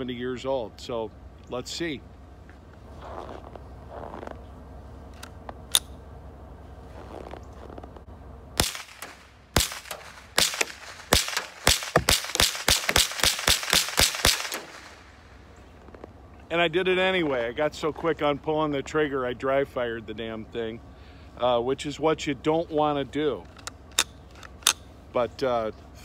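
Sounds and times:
rifle gunshots: 8.6s - 15.3s.

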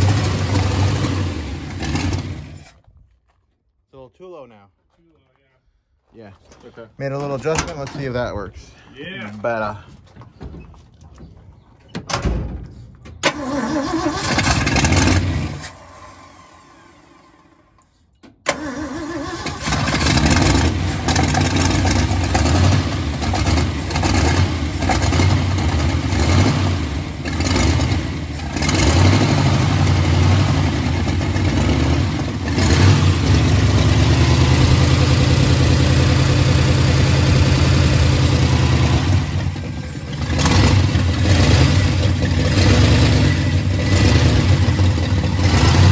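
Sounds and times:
car engine starting and idling: 0.0s - 2.8s, 13.2s - 45.9s.

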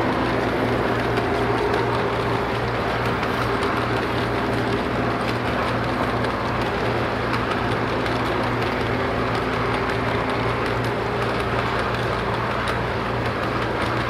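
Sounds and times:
toy train wheels rumbling: 0.0s - 14.0s
wheels clicking on rails: 0.0s - 14.0s.

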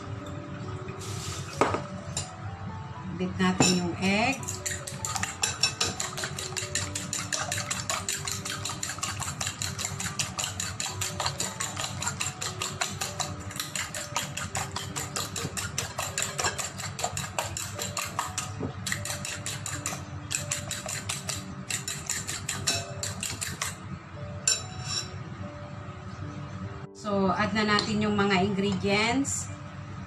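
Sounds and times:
fork clicking against glass bowl: 4.4s - 23.8s.

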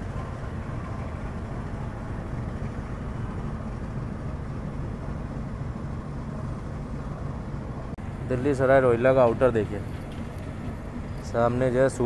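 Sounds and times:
train rumbling on track: 0.0s - 12.0s.

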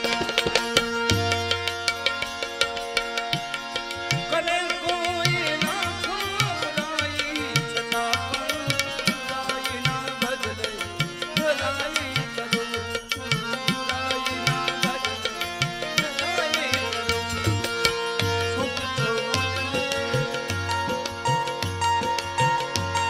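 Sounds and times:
steady drum beat: 0.0s - 1.8s
harmonium chords: 0.0s - 23.0s
man singing devotional song: 0.0s - 23.0s.

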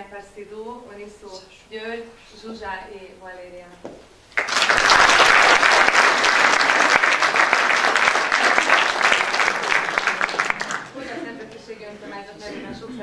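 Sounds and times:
audience applauding: 4.3s - 11.0s.

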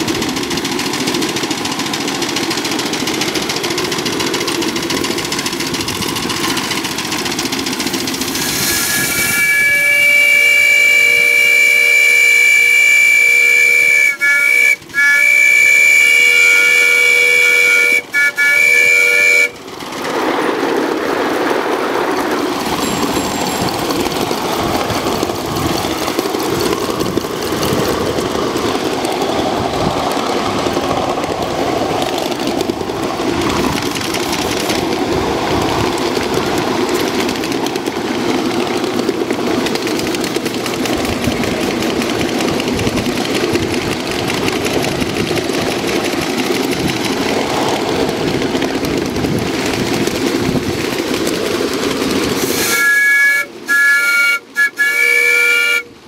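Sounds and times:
model steam locomotive clattering: 0.0s - 56.0s
steam whistle: 8.4s - 19.6s, 52.4s - 56.0s.

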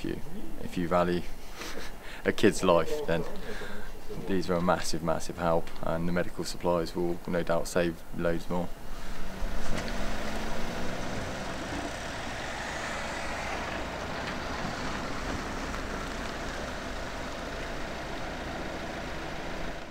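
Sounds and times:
van engine and tyre noise: 8.6s - 19.9s
car driving off: 8.7s - 19.9s.

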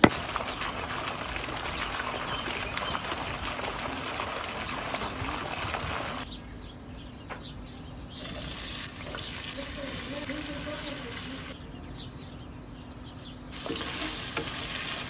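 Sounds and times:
running water: 0.0s - 6.3s, 8.2s - 11.6s.

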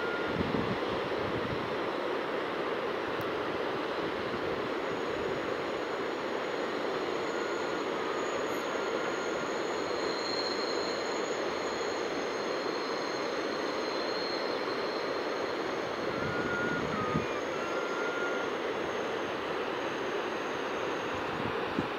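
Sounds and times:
distant freight train rumble: 0.0s - 21.9s
faint high tones: 6.6s - 21.1s.

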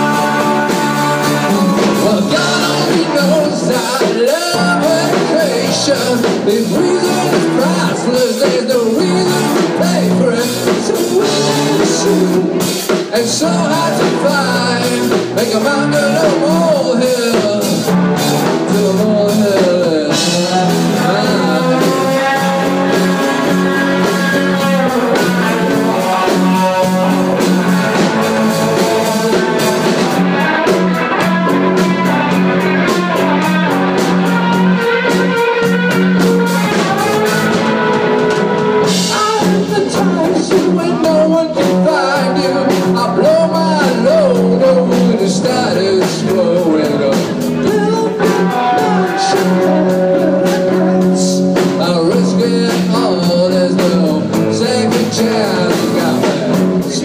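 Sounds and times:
bass guitar: 0.0s - 57.0s
drum kit: 0.0s - 57.0s
electric guitars: 0.0s - 57.0s.

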